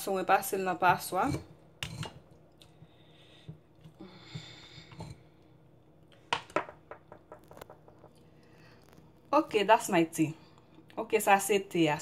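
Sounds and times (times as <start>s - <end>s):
spoon scraping a mesh strainer: 0.8s - 2.2s.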